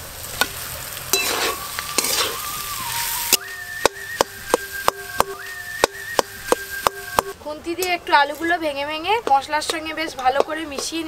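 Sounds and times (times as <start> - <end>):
potatoes sizzling in hot oil: 0.0 - 7.4
metal spatula stirring: 1.1 - 7.3
spatula chopping against pan: 3.3 - 7.4.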